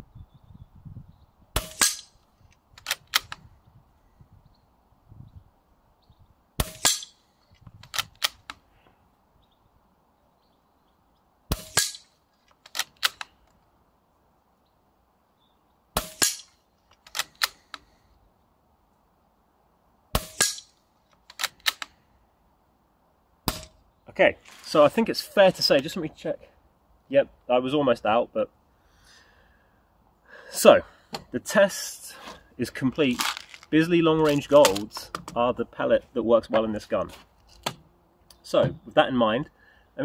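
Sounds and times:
air rifle shots: 0:01.6 - 0:02.2, 0:06.6 - 0:07.2, 0:11.5 - 0:12.1, 0:16.0 - 0:17.7, 0:20.1 - 0:20.8
rifle lever clicks: 0:02.8 - 0:03.4.

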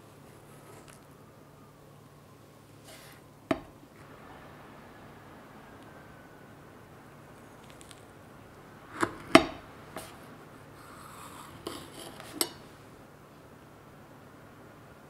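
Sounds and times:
knife scraping plate: 0:10.8 - 0:12.6.

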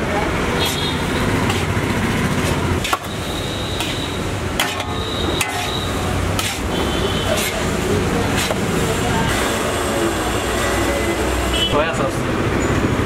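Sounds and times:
metal ladle clanking in wok: 0:03.8 - 0:07.7.

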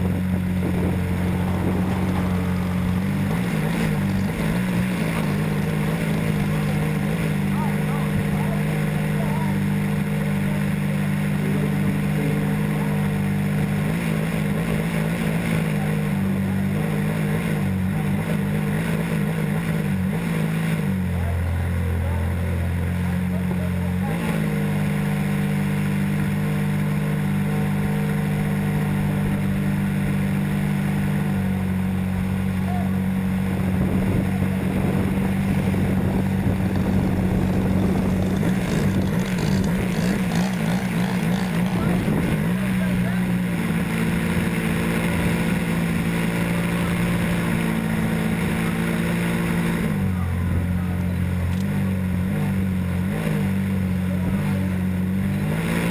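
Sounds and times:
model airplane motor and propeller: 0:00.0 - 0:55.9
model airplane motor droning: 0:33.5 - 0:51.7.

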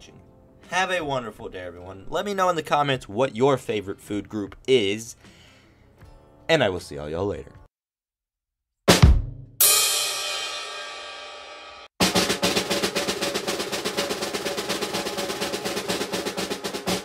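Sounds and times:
drum and cymbal hit: 0:08.9 - 0:17.0
fast snare drum roll: 0:12.0 - 0:17.0.

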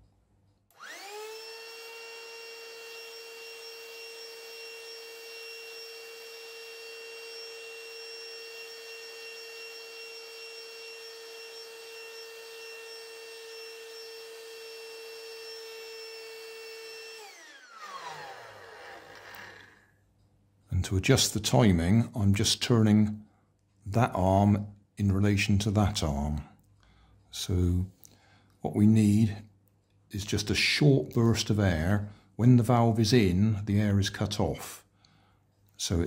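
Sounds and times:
electric air pump whining: 0:00.7 - 0:20.0.

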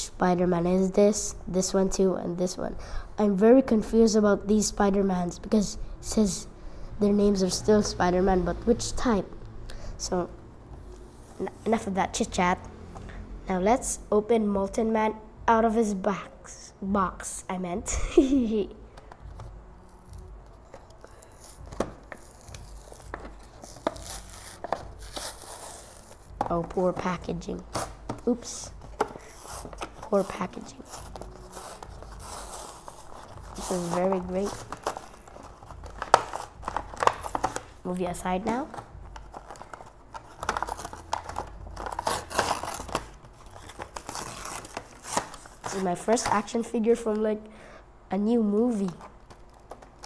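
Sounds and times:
packaging rustling and tearing: 0:19.2 - 0:37.8, 0:38.4 - 0:46.4, 0:48.8 - 0:50.0
plastic crinkling: 0:19.9 - 0:27.0, 0:27.7 - 0:37.8, 0:38.5 - 0:46.4, 0:48.8 - 0:50.0
box being handled clicks and knocks: 0:28.0 - 0:30.1, 0:34.1 - 0:37.7.

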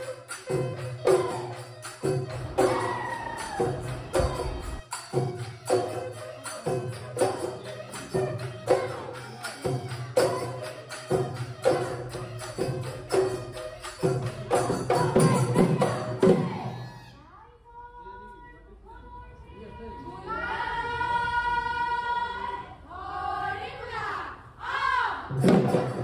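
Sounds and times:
percussion beat: 0:00.0 - 0:17.0, 0:25.2 - 0:26.0.

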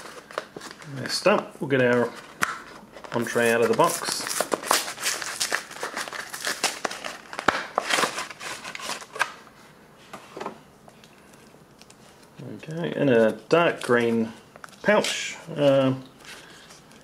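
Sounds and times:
pouch crinkling: 0:03.2 - 0:09.2.

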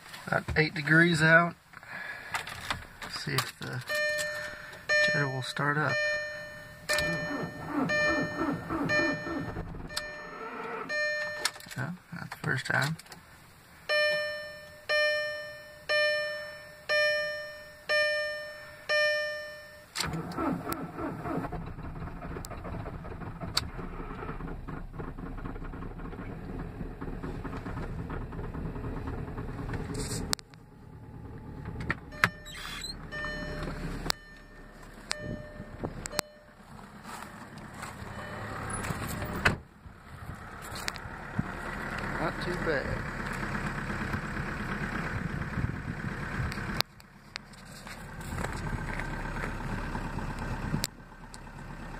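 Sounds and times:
diesel engine starting and idling: 0:00.8 - 0:12.0, 0:13.7 - 0:51.9
dashboard warning chime: 0:03.8 - 0:11.8, 0:13.9 - 0:19.9, 0:32.0 - 0:36.8, 0:37.9 - 0:39.4.

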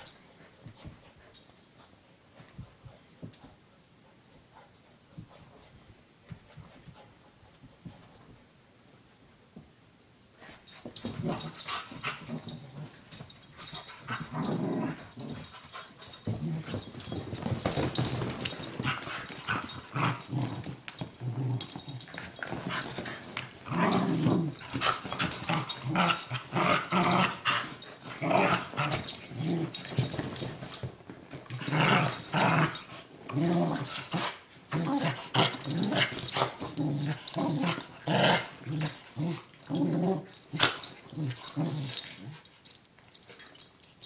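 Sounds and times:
puppy growling: 0:18.2 - 0:30.1, 0:31.5 - 0:42.4.

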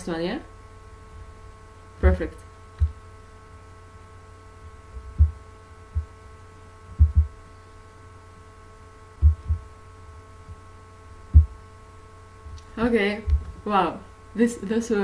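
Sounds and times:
electrical hum: 0:00.0 - 0:15.0
dull low thumps: 0:04.6 - 0:06.2, 0:06.9 - 0:07.4, 0:09.2 - 0:09.8, 0:10.4 - 0:11.7, 0:12.4 - 0:13.6.

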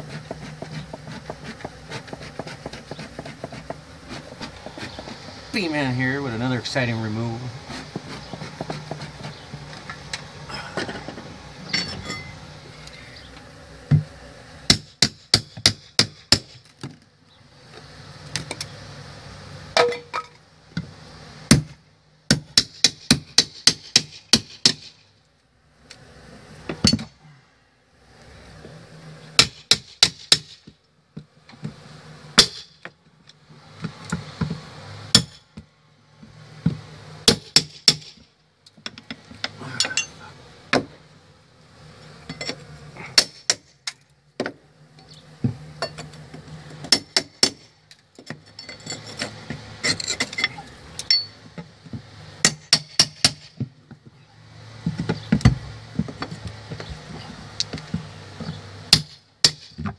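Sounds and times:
hammer striking pry bar: 0:43.2 - 0:43.6, 0:52.4 - 0:53.5, 0:58.9 - 0:59.7.

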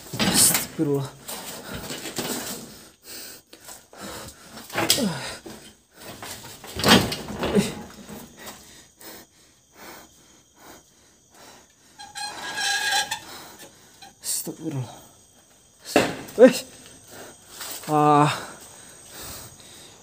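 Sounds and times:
man groaning and exhaling: 0:04.0 - 0:05.6, 0:17.8 - 0:18.6.

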